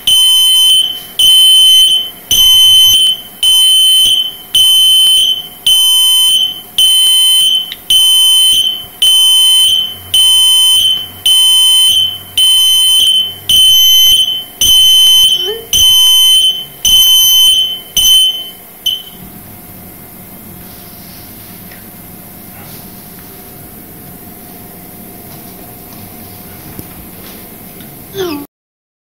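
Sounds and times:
high-pitched alarm beeps: 0.0 - 19.2.

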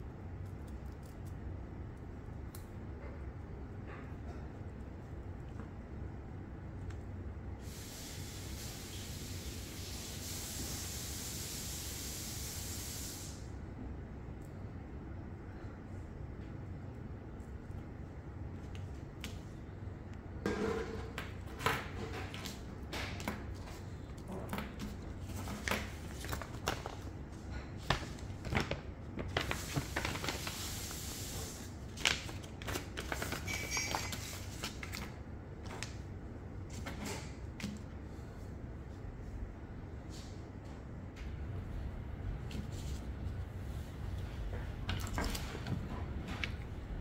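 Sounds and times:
steady low hum: 13.4 - 30.3, 34.5 - 47.0.

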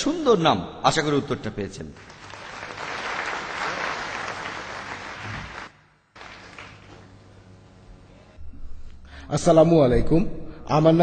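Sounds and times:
audience applauding: 2.0 - 7.2.

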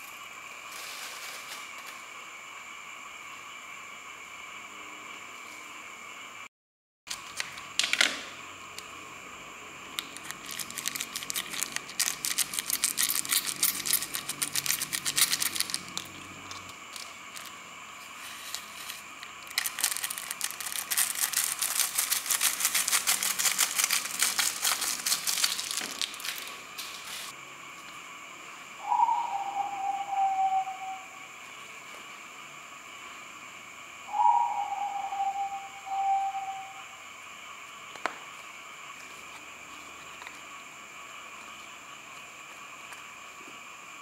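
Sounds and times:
faint high whine: 0.0 - 6.5, 13.2 - 44.0
eggshells cracking: 10.0 - 17.5, 19.3 - 26.5.

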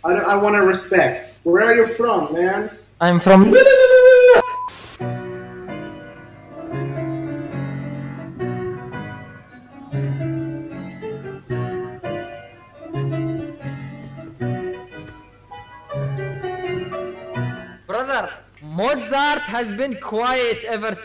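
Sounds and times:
keyboard chords: 4.6 - 18.0.

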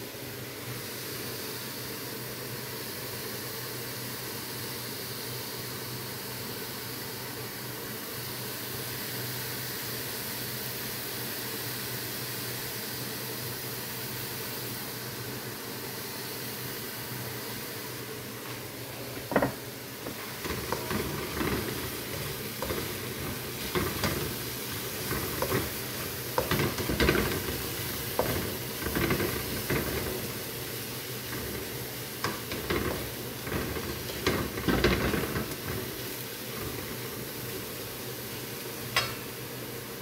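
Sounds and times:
food sizzling in a pan: 0.0 - 40.0
spatula scraping a pan: 19.3 - 30.6, 31.2 - 37.0.

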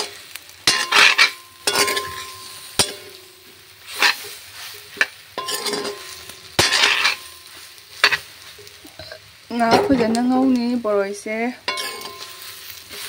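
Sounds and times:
spoon scraping wok: 0.0 - 10.3, 11.6 - 13.0
food sizzling in oil: 0.0 - 13.0.

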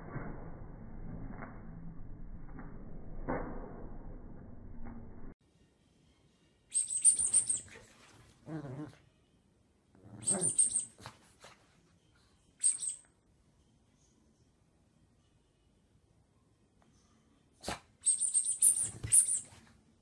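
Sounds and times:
squeaky toy squeaking: 6.8 - 7.8, 10.2 - 11.1, 12.6 - 13.0, 18.0 - 19.6.

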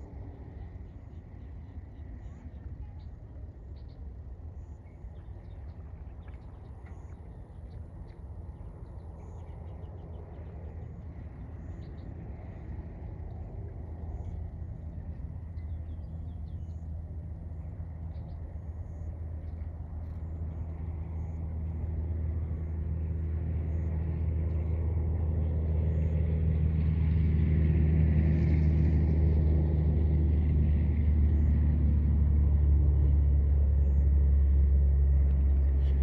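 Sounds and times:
motor engine humming: 10.3 - 36.0.

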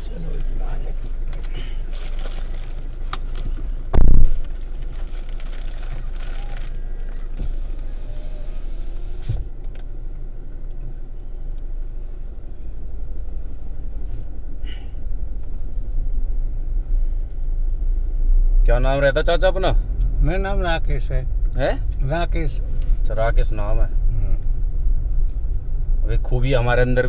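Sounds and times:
car engine rumble: 0.0 - 27.0
car door shutting: 7.2 - 9.9.

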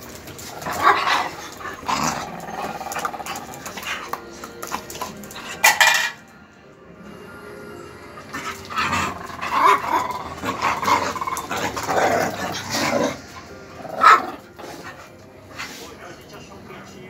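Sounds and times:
dogs growling: 0.0 - 6.1, 8.0 - 16.0
dogs barking: 0.4 - 6.2, 8.3 - 15.8.

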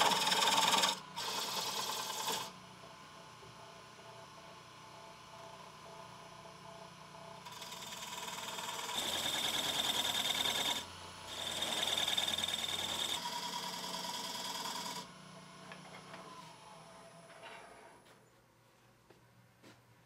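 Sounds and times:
wood lathe turning hiss: 0.0 - 2.6, 7.3 - 17.1.

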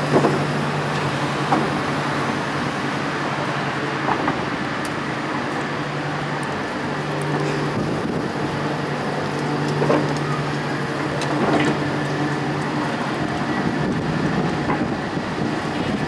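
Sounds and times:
electric tram humming: 0.0 - 16.0
tram wheels rolling on rails: 0.0 - 16.0
wheels knocking on track: 11.2 - 16.0.

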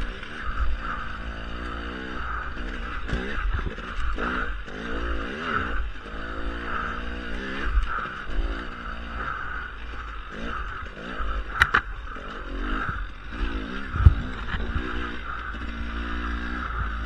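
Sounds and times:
dirt bike engine revving: 0.0 - 17.0
wind noise: 9.2 - 17.0
sharp clicks: 9.8 - 16.8.

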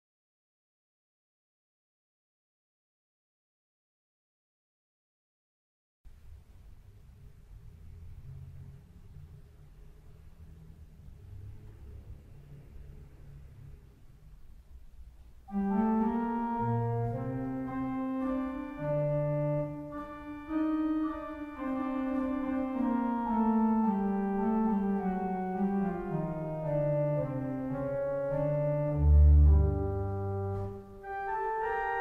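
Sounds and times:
pipe organ playing chords: 15.5 - 32.0.

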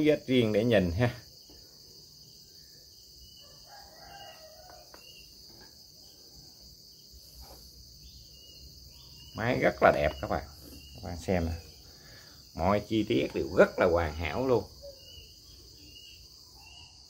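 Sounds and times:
insects droning: 0.0 - 17.0
faint rooster crow: 3.2 - 5.7.

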